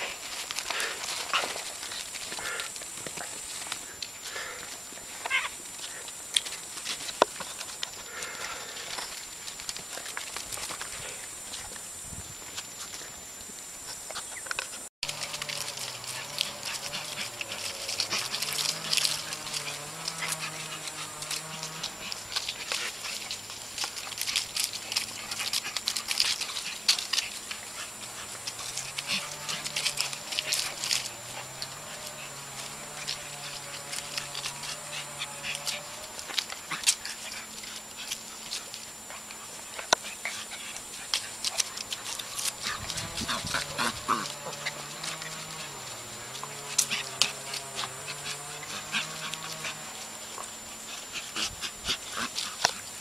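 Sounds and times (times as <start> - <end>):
puppies whimpering and whining: 5.2 - 5.6, 14.1 - 53.0.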